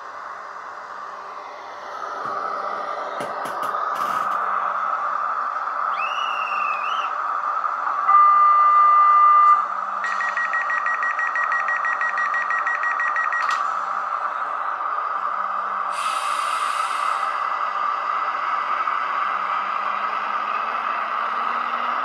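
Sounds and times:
electric train running hum: 0.0 - 22.0
air hiss: 15.9 - 17.4.

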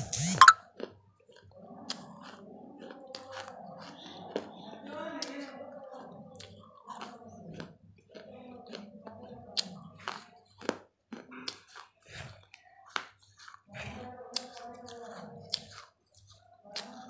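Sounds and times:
grinding chews: 0.0 - 17.0.

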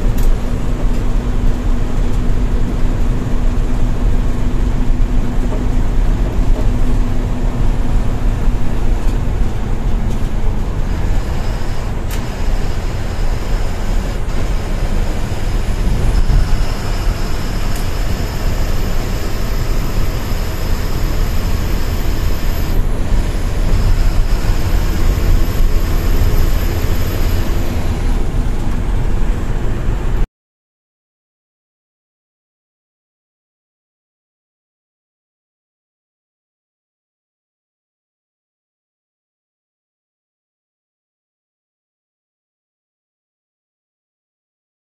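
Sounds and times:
bus engine and road noise: 0.0 - 30.3
faint high whine: 10.9 - 28.2.

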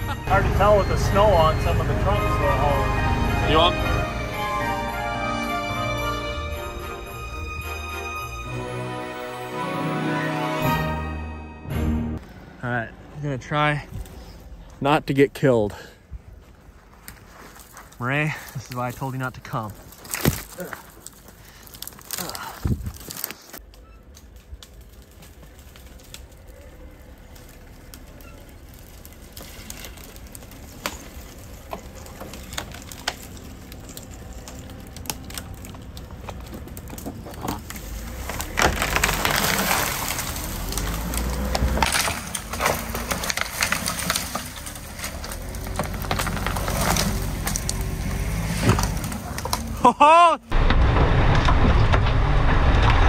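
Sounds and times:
diesel engine running: 0.0 - 8.4, 25.0 - 49.8
branches cracking and snapping: 16.4 - 49.9, 50.5 - 53.0.

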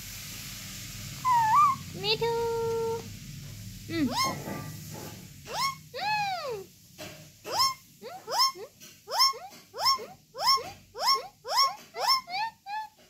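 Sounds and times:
parakeet squawking: 1.2 - 1.9, 3.9 - 4.6, 5.5 - 6.6, 7.4 - 13.0.

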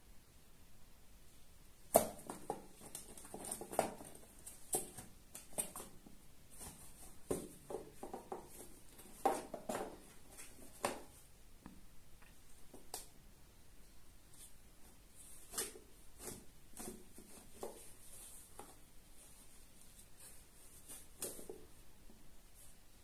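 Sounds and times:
cat scratching cardboard box: 2.0 - 11.2, 15.1 - 19.4.

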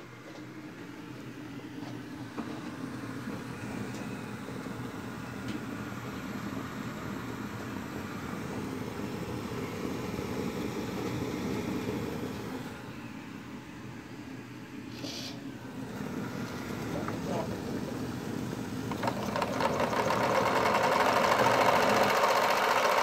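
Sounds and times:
steam plant rushing rumble: 15.6 - 23.0.

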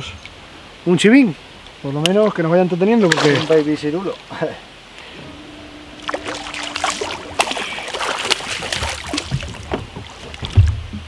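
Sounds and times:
water splashing: 3.0 - 4.3, 5.0 - 11.0
faint steady hum: 3.4 - 11.0
knocks and clatter on boat: 6.1 - 11.0.

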